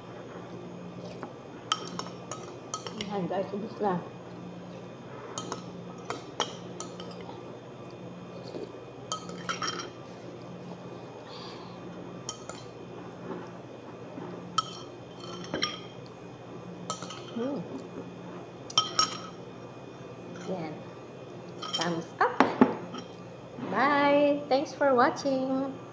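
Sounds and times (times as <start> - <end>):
faint steady hum: 0.0 - 25.9
metal spoon clinking on ceramic bowl: 1.7 - 3.1, 5.4 - 7.2, 9.1 - 10.0, 14.6 - 15.9, 16.9 - 17.4, 18.7 - 19.4.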